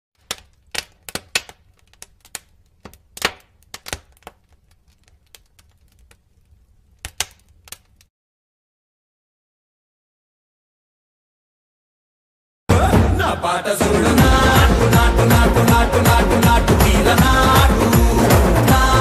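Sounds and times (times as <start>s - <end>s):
sharp clicks and snaps: 0.2s - 8.1s.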